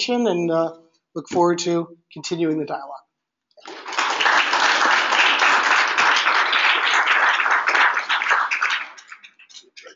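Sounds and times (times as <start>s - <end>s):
audience applauding: 3.6s - 9.8s.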